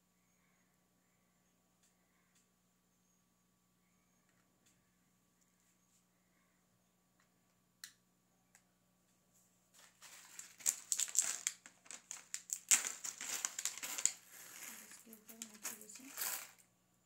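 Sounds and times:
plastic sheet crinkling: 0:09.8 - 0:16.6.

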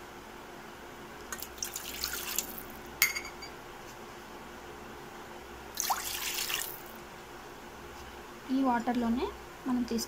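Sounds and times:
water splashing into metal pan: 0:05.8 - 0:06.8.

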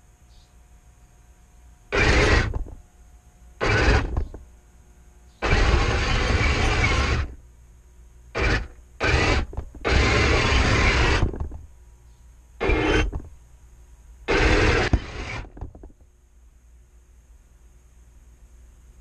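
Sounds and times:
model tank drive running: 0:01.9 - 0:02.6, 0:03.6 - 0:04.2, 0:05.4 - 0:07.4, 0:08.4 - 0:11.4, 0:12.6 - 0:13.2, 0:14.3 - 0:15.5.

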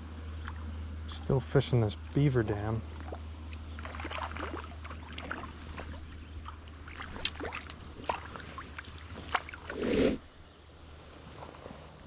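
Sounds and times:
water trickling and dripping: 0:02.9 - 0:09.8.

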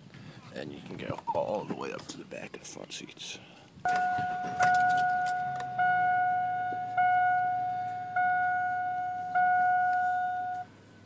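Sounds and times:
dashboard warning chime: 0:03.9 - 0:10.7
car engine idling: 0:03.9 - 0:11.0.

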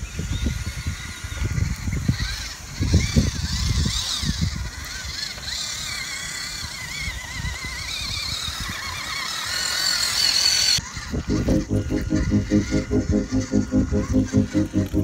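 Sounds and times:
electric motor whining: 0:00.3 - 0:15.0
low pulsing sound: 0:11.1 - 0:15.0.

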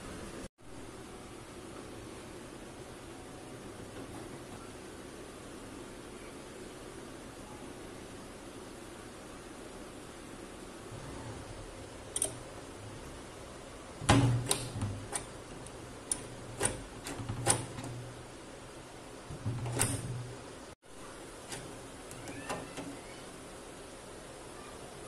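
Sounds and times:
metal door bolt clicking and clanking: 0:12.1 - 0:12.5, 0:14.0 - 0:18.3, 0:19.3 - 0:20.4.

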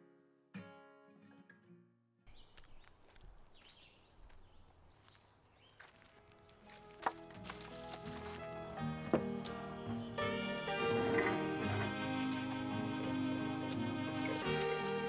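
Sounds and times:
bird chirps: 0:02.3 - 0:05.9
faint outdoor ambience: 0:02.3 - 0:15.0
acoustic guitar strum: 0:10.2 - 0:15.0.

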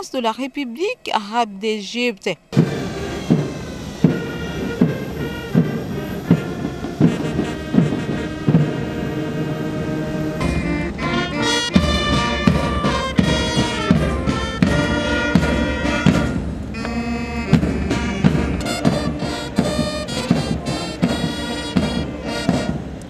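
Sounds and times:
military brass band playing: 0:02.5 - 0:23.0.

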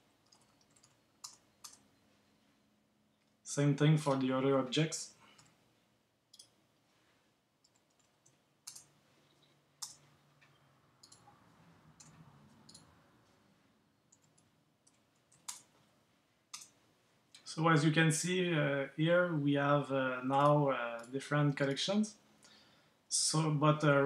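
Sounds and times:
keyboard and mouse clicks: 0:00.2 - 0:01.9, 0:06.3 - 0:06.6, 0:07.6 - 0:13.0, 0:14.1 - 0:15.8, 0:16.5 - 0:16.8.

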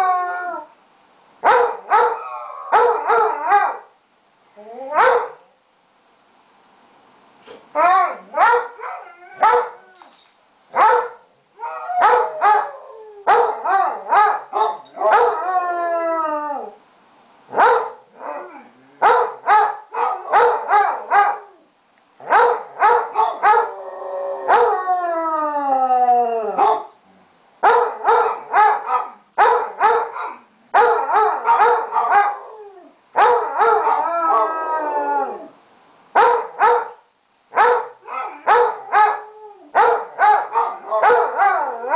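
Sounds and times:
hounds barking: 0:01.4 - 0:03.9, 0:08.3 - 0:09.8, 0:10.8 - 0:11.3, 0:12.0 - 0:12.7, 0:13.3 - 0:15.4, 0:17.5 - 0:18.0, 0:19.0 - 0:21.5, 0:22.2 - 0:23.7, 0:26.6 - 0:26.9, 0:27.6 - 0:32.4, 0:33.2 - 0:34.0, 0:36.2 - 0:37.0, 0:37.6 - 0:39.2, 0:39.8 - 0:41.9
dog howling: 0:23.4 - 0:26.8, 0:30.8 - 0:35.6, 0:38.1 - 0:41.9.

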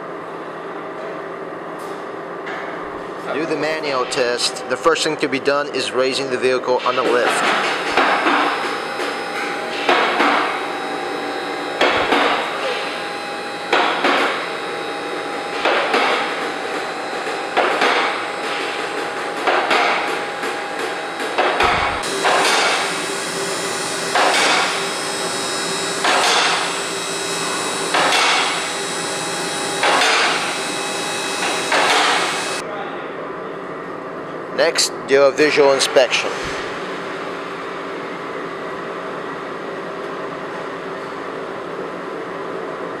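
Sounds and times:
lift drive humming: 0:03.4 - 0:32.6.

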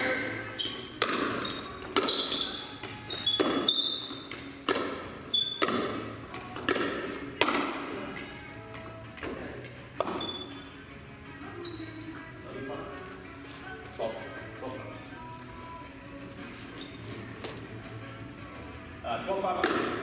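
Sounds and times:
shoe squeaks: 0:00.0 - 0:06.3, 0:07.4 - 0:08.2, 0:10.0 - 0:10.8, 0:11.4 - 0:13.8, 0:16.4 - 0:17.4
ball bouncing on hard floor: 0:00.6 - 0:10.4, 0:19.6 - 0:20.0
ball popping off paddles: 0:00.7 - 0:08.3, 0:19.6 - 0:20.0.

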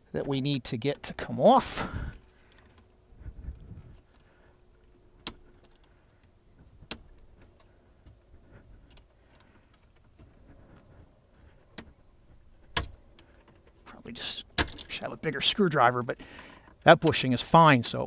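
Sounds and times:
faint low rumble: 0:01.9 - 0:14.2.

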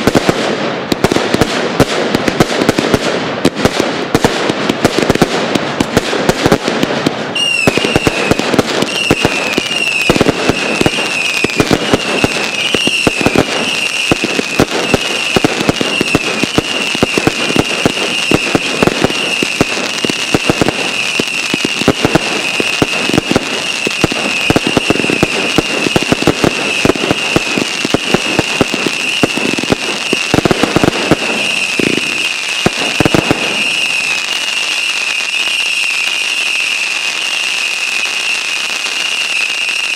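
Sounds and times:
fireworks bangs and crackling: 0:00.0 - 0:39.9
high wavering whistle: 0:07.4 - 0:08.3, 0:08.9 - 0:14.1, 0:33.0 - 0:39.9.

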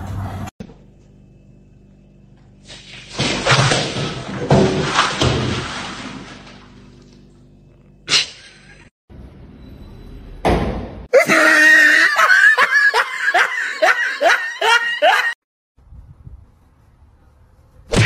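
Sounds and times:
person laughing hard: 0:11.1 - 0:15.4.

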